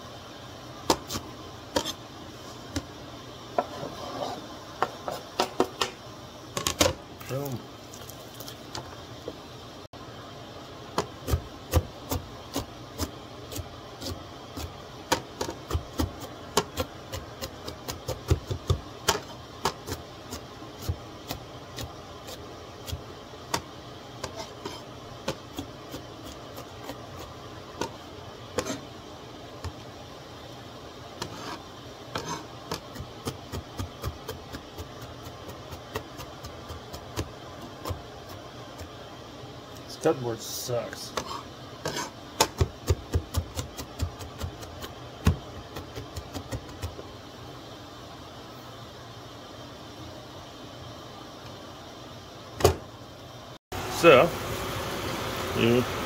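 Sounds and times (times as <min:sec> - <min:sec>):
cleaver chopping on cutting board: 0:41.2 - 0:47.0.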